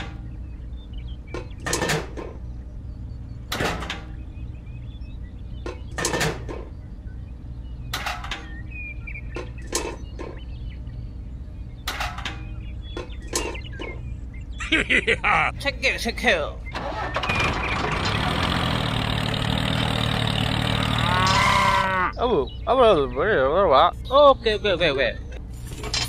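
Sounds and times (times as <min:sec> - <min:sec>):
steady low hum: 0:00.0 - 0:16.7.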